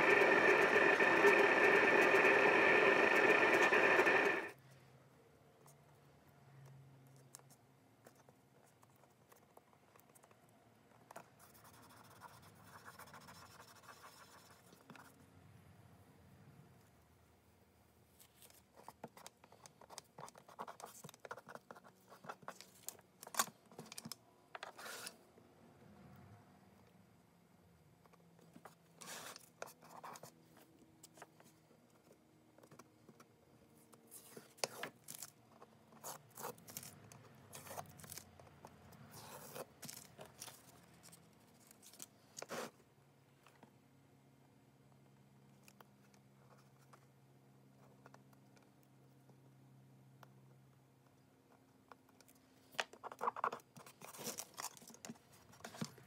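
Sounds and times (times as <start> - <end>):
small clicks and scrapes: 6.6 - 11.6, 28.0 - 42.8, 50.2 - 56.0.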